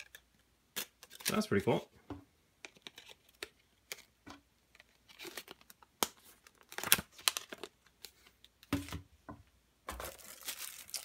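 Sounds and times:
plastic package crinkling: 4.7 - 8.2, 9.9 - 11.0.

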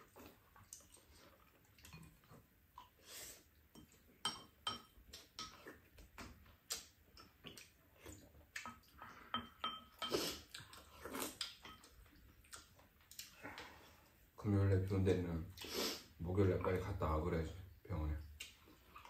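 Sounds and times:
utensils clinking on bowls: 3.8 - 5.6, 9.3 - 10.2.

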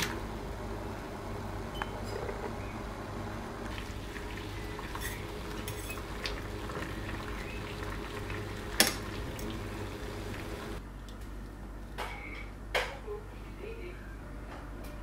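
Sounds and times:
water boiling and bubbling: 2.4 - 10.8.

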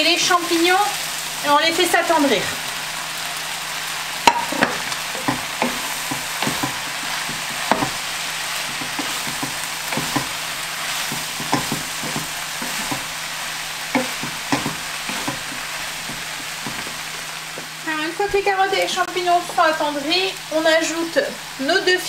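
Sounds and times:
vegetables sizzling in a pan: 0.0 - 22.0
wooden spatula knocking on pan: 4.2 - 8.0, 8.6 - 10.4, 11.0 - 13.1, 13.9 - 17.7.

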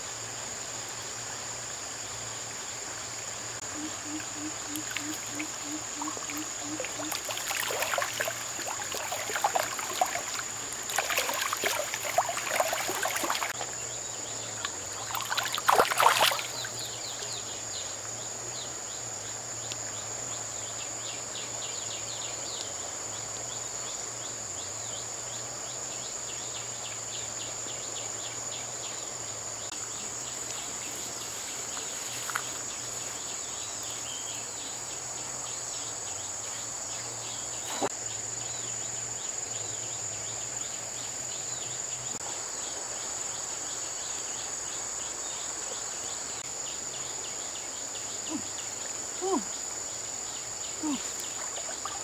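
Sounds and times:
insect chirps: 0.0 - 52.0
stream water splashing over gravel: 4.8 - 13.8, 14.6 - 16.9, 50.9 - 52.0.

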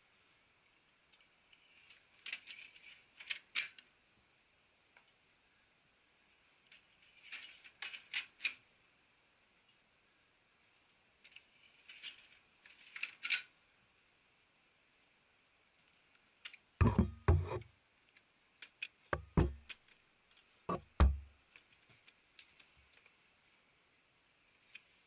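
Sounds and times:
dull thumps: 16.8 - 17.6, 19.2 - 19.7, 20.7 - 21.3.

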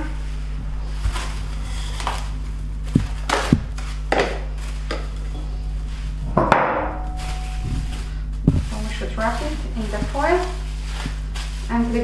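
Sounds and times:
steady low hum: 0.0 - 12.0
knocks and thumps of dough: 2.9 - 5.1, 8.4 - 8.8.

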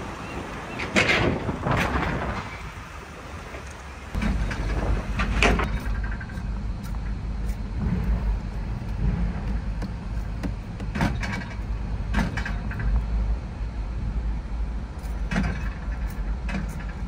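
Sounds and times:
outdoor noise: 0.0 - 17.0
low rumble inside car cabin: 4.1 - 17.0.

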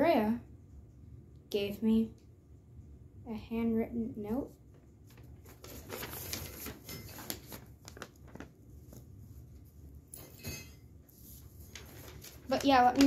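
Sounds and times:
paper rustling and crackling: 4.6 - 10.0, 11.0 - 13.0.

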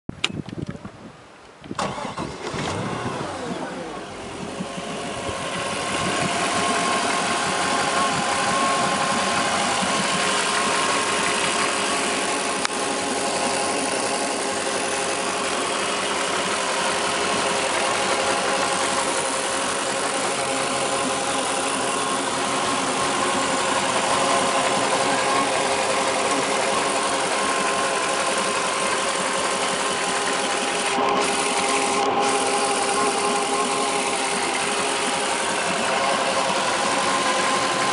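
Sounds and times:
boat engine idling: 2.7 - 37.9.

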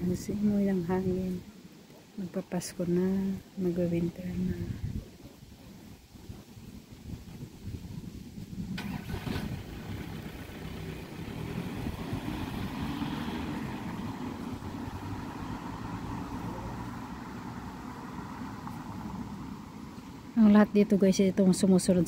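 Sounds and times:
tyre noise on road: 4.8 - 20.8
car engine pulling away: 8.7 - 20.4.

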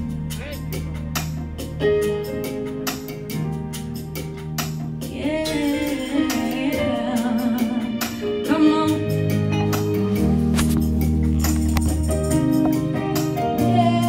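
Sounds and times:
light percussion: 0.0 - 14.0
sustained instrumental chords: 0.0 - 14.0
woman singing with vibrato: 5.1 - 9.5.

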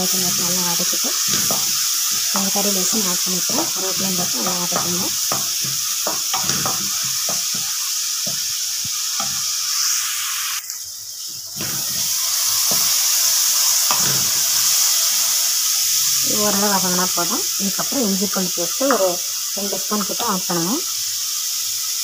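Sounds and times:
wooden spoon scraping a pan: 0.0 - 9.6
onions sizzling in hot oil: 0.0 - 22.0.

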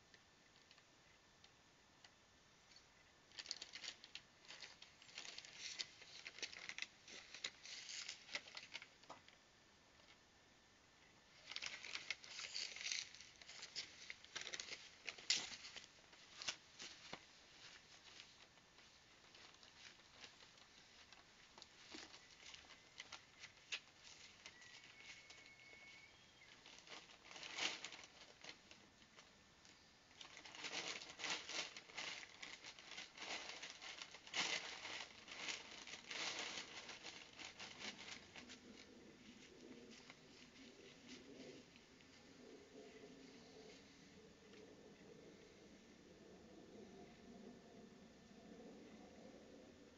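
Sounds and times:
bird feed rustling and pattering: 3.3 - 9.2, 11.4 - 28.9, 30.1 - 43.9.

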